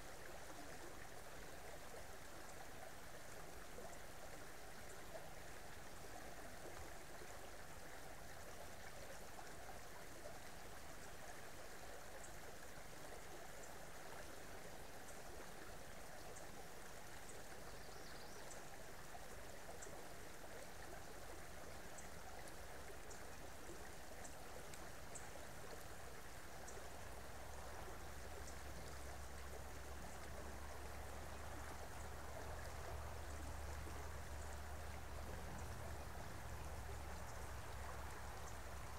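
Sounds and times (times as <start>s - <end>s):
creek water running: 0.0s - 38.9s
faint high ticks: 24.2s - 26.0s.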